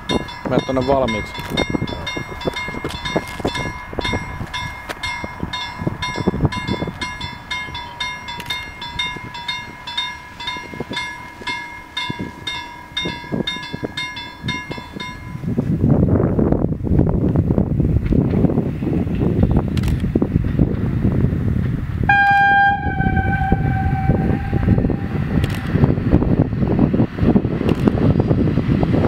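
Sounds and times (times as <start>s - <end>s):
level crossing bell ringing: 0.0s - 15.5s.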